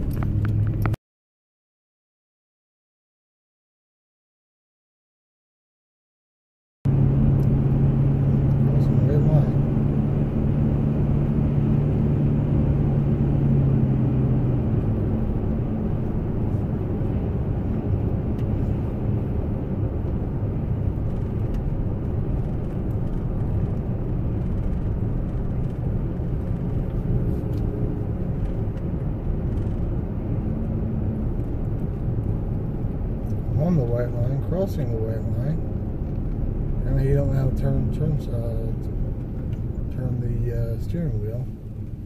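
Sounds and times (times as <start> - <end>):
car road and engine noise: 0.0 - 1.0, 6.9 - 42.0.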